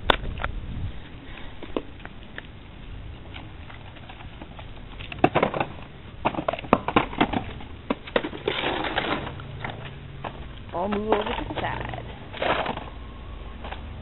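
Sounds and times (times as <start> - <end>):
rustling scrape: 6.4 - 13.0.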